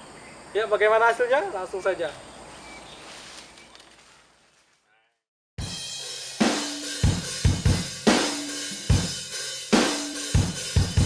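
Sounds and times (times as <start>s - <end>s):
drum kit beat: 5.6s - 11.0s.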